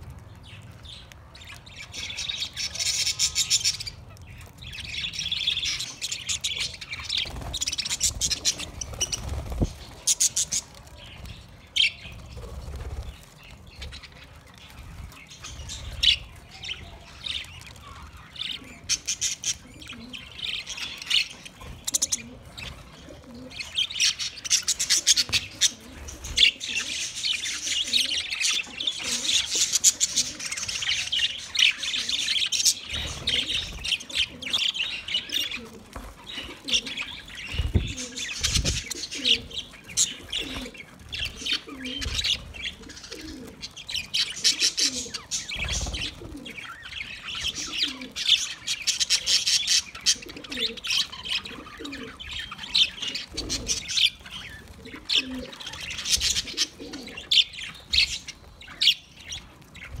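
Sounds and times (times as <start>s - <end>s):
budgerigars chattering and warbling: 1.9s - 60.0s
low cooing call: 47.5s - 48.2s.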